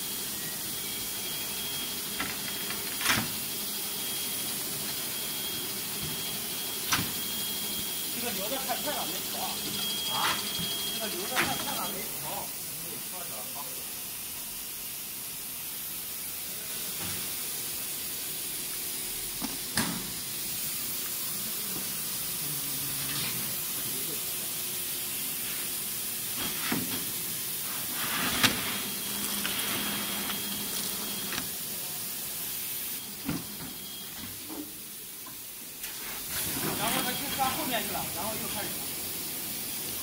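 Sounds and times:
machine hissing: 0.0s - 40.0s
thin whistling tone: 0.4s - 1.9s.

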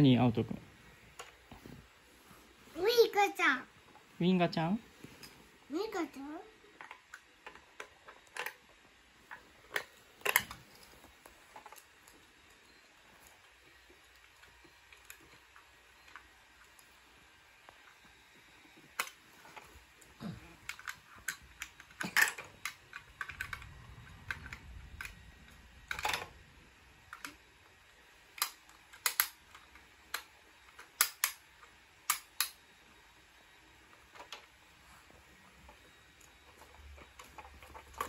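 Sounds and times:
plastic toys clicking and clattering: 6.8s - 12.2s, 18.8s - 19.7s, 20.6s - 26.3s, 28.3s - 32.6s, 34.1s - 34.5s, 36.5s - 38.0s.

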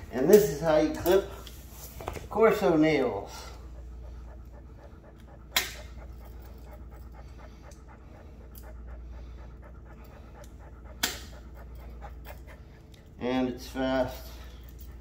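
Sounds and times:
dog panting rapidly: 0.1s - 15.0s
nail clippers snipping: 5.5s - 5.9s, 11.0s - 11.3s.

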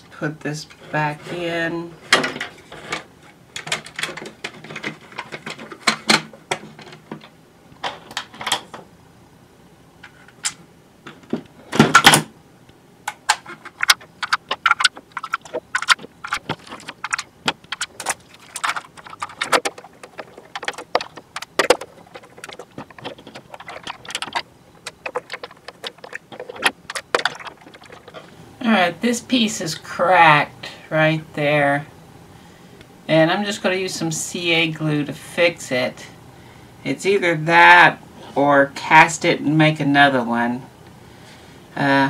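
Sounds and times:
plastic parts clicking and rattling: 2.1s - 8.8s, 13.1s - 28.4s.

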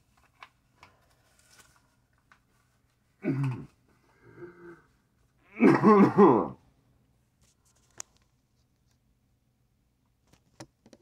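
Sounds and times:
man's short vocal noise: 5.5s - 6.6s.

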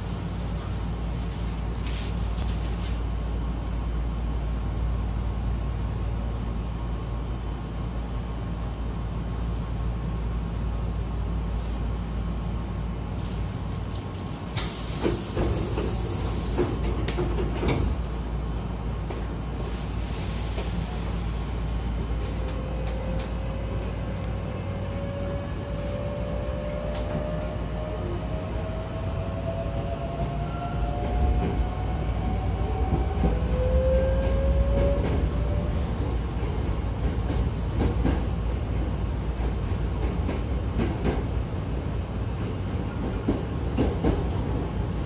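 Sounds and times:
train low hum: 0.0s - 45.0s
air hiss: 14.6s - 16.9s, 19.6s - 22.2s
train rising whine: 14.6s - 37.4s.

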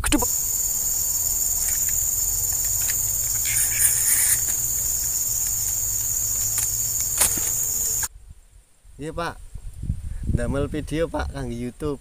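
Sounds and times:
insects chorus: 0.0s - 8.1s
insect rasp: 0.1s - 8.1s.

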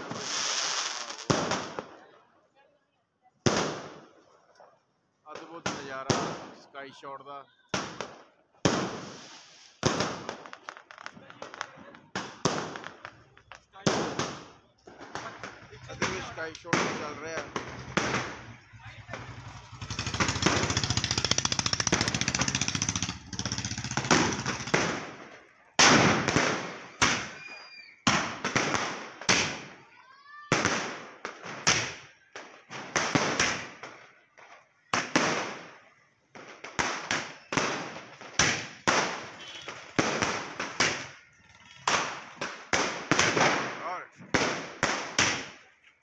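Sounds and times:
firework crackling rush: 0.0s - 2.0s, 7.7s - 45.8s
firework shells bursting: 7.7s - 29.7s, 36.4s - 45.6s.

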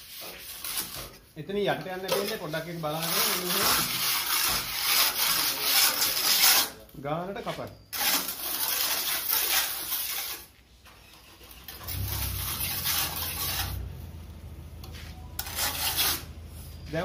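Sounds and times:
trowel scraping cement plaster: 0.0s - 1.2s, 2.0s - 6.9s, 7.5s - 13.9s, 15.4s - 17.0s
low rumble: 11.8s - 15.4s.

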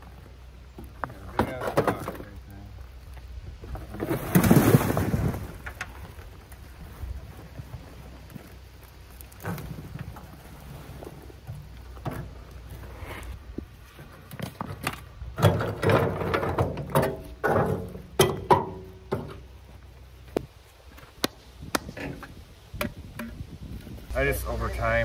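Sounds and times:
soil and rocks tipped out: 3.2s - 13.4s.

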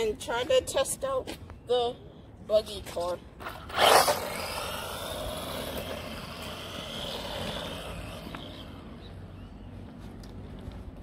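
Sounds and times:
electric motor whining: 3.7s - 9.1s.

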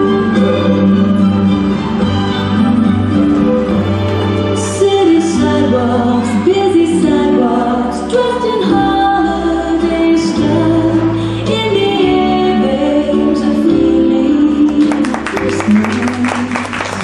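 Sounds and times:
instrumental backing music: 0.0s - 17.0s
woman singing a song: 4.7s - 17.0s.

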